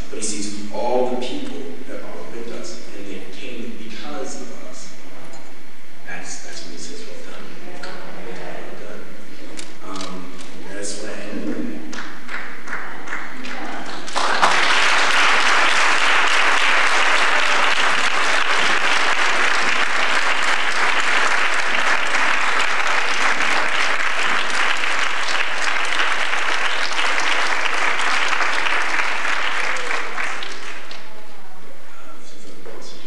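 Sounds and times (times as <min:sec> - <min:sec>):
large audience applauding: 0:11.9 - 0:31.3.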